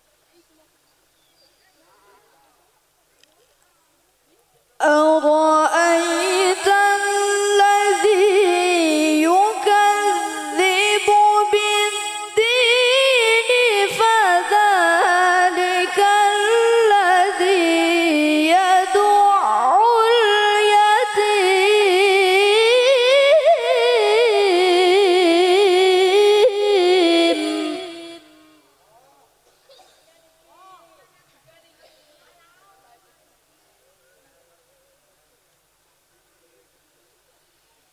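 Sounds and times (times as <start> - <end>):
girl chanting melodically: 4.8 - 28.6.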